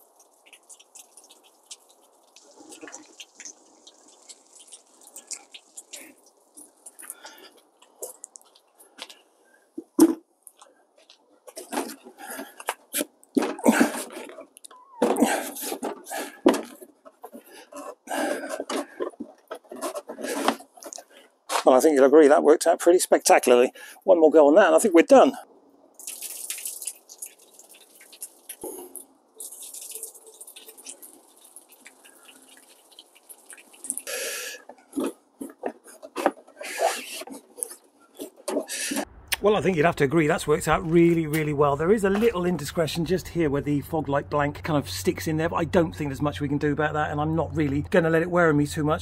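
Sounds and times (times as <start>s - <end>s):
water splattering on plastic: 0.0s - 9.2s, 25.9s - 37.3s
plastic bumper rustling and rubbing: 11.2s - 21.7s, 34.6s - 39.2s.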